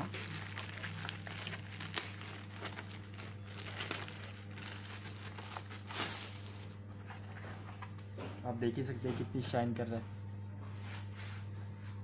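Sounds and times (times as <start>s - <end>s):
plastic film crinkling: 0.0s - 6.8s
steady low hum: 0.0s - 12.0s.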